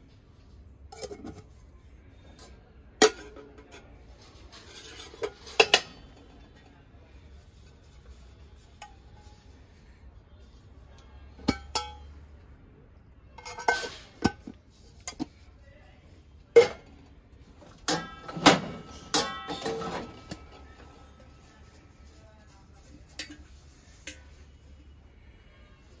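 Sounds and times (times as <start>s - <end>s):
metal lid clinking: 11.5s - 12.1s, 13.4s - 15.3s, 17.6s - 20.7s
metal clattering on metal: 17.6s - 20.7s.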